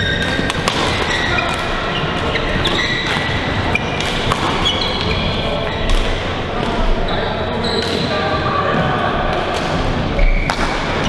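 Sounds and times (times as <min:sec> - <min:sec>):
rackets hitting shuttlecocks: 0:00.0 - 0:05.2, 0:09.3 - 0:11.0
sneakers squeaking on court: 0:00.0 - 0:06.1.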